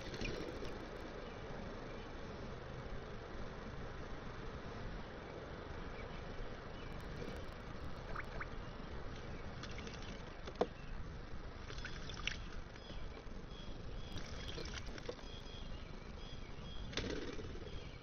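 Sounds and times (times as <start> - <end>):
background hiss: 0.0 - 18.0
bird splashing and fluttering in water: 11.6 - 12.5.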